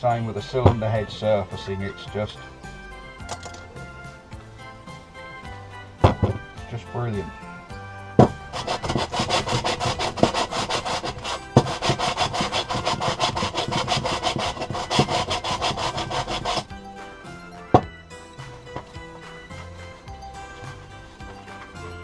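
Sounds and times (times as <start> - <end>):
metal part scraping on abrasive: 0.4 - 2.0, 8.2 - 16.8, 17.7 - 19.8
sharp knock: 6.0 - 6.5.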